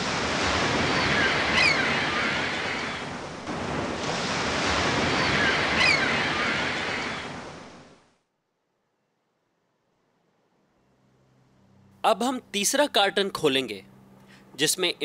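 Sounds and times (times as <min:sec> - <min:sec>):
ocean surf washing on shore: 0:00.0 - 0:08.2
high falling cries: 0:00.8 - 0:03.2, 0:05.0 - 0:07.4.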